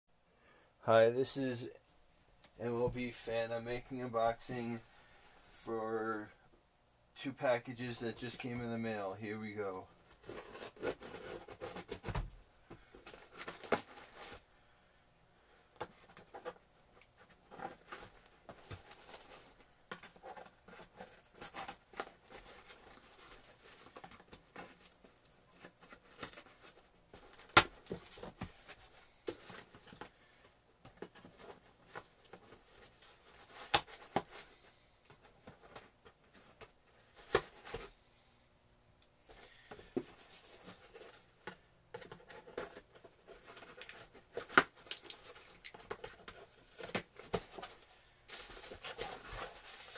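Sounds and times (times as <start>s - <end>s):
packaging rustling and tearing: 12.9s - 14.4s, 42.0s - 49.9s.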